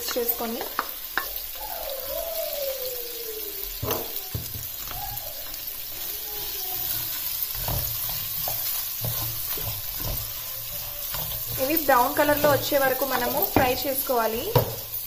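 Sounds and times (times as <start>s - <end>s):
onions sizzling in hot oil: 0.0s - 15.0s
spoon knocking against a pan: 0.5s - 1.4s, 3.8s - 5.1s, 7.5s - 15.0s.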